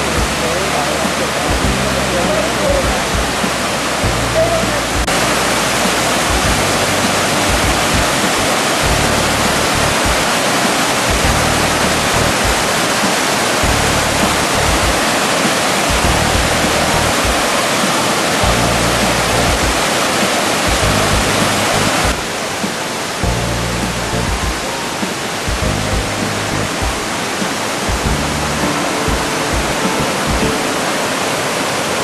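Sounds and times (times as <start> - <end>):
waterfall rushing: 0.0 - 32.0.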